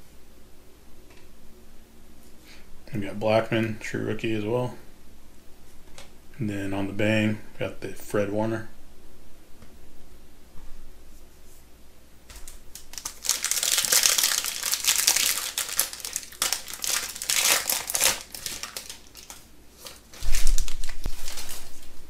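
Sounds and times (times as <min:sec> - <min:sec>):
wrapper tearing and crinkling: 0:12.3 - 0:22.0.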